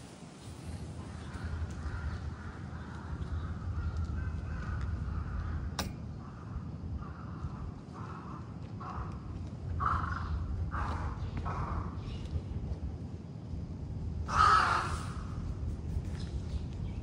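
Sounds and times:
steady low rumble: 0.0 - 17.0
sharp click: 5.8 - 6.0.

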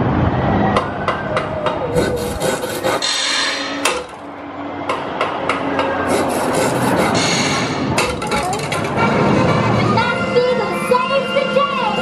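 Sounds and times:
wood rasping and sawing noise: 1.9 - 4.2, 6.0 - 9.0.

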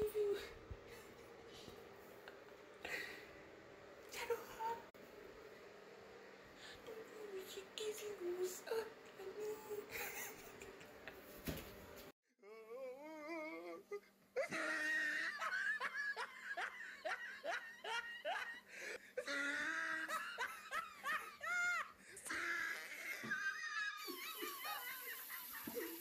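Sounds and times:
high-pitched laughter: 14.4 - 18.6, 19.2 - 26.0.

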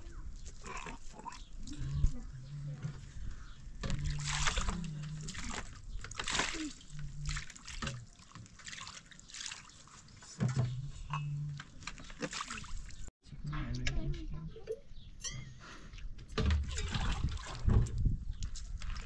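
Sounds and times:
water splashing over glasses: 3.8 - 13.1.

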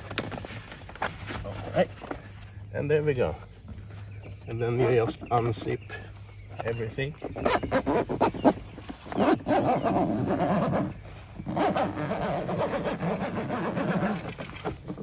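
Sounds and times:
zipper being pulled open: 7.4 - 15.0.

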